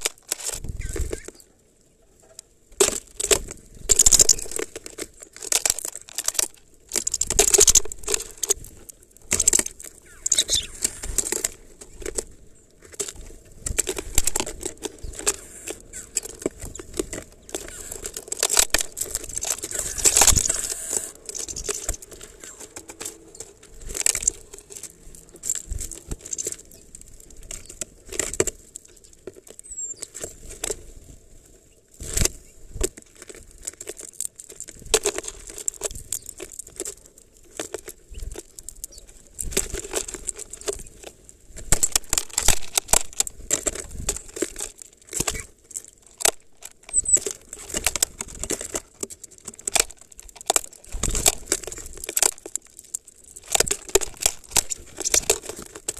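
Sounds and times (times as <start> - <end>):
birds pecking seeds in plastic feeder: 0.0 - 55.9
wing flutters: 9.3 - 12.1, 13.7 - 24.8.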